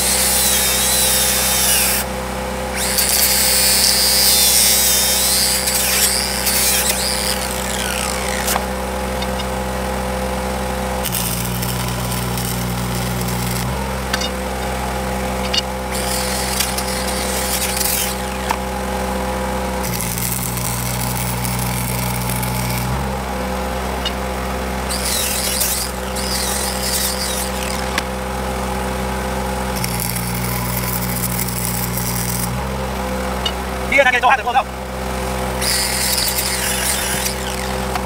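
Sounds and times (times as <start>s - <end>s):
crackling welding arc: 0.0s - 2.0s, 2.8s - 9.6s, 11.0s - 14.0s, 15.4s - 18.6s, 19.8s - 23.1s, 24.9s - 28.0s, 29.7s - 32.6s, 35.6s - 38.0s
generator engine hum: 0.0s - 38.0s.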